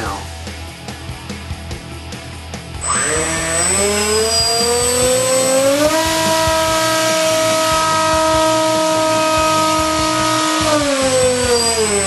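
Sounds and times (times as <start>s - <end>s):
electric motor and propeller whine: 2.7s - 12.0s.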